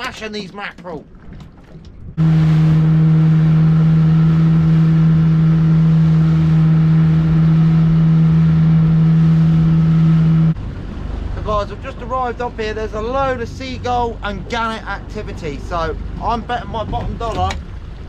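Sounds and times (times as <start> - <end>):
rushing water: 0.0 - 18.0
wind: 0.0 - 18.0
outboard motor running flat out: 2.2 - 15.1.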